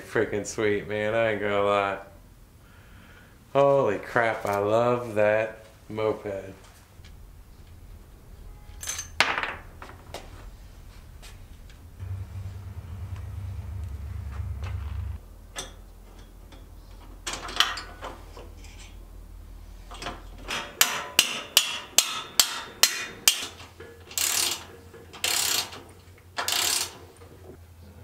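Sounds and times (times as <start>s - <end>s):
metal parts knocking: 8.7s - 11.8s
ratchet wrench clicking: 24.2s - 25.8s, 26.4s - 27.0s.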